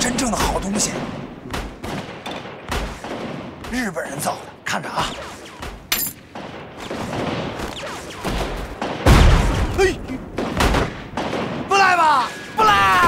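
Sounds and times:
gunshots: 0:00.0 - 0:13.0
heavy booms: 0:08.8 - 0:11.7.

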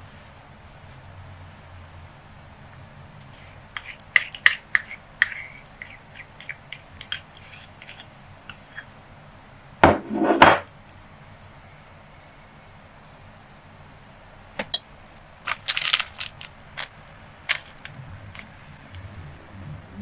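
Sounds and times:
spoon scraping ceramic bowl: 0:03.4 - 0:08.9.

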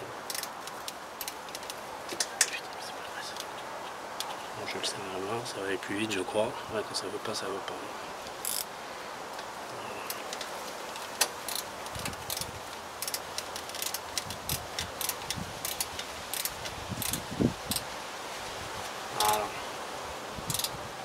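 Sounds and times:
background hiss: 0:00.0 - 0:21.0
metallic clicks of socket and bolt: 0:00.3 - 0:02.5, 0:10.3 - 0:17.8, 0:20.5 - 0:20.8.

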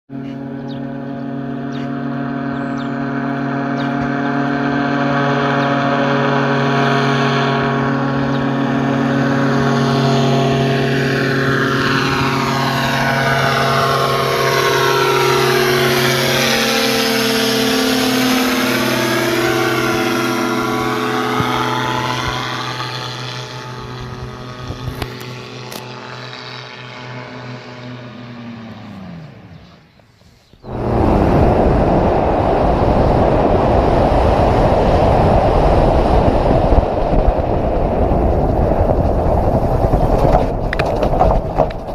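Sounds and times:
aircraft engine and propeller droning: 0:00.1 - 0:41.9
loud rush of noise: 0:04.1 - 0:26.1, 0:30.6 - 0:41.9.

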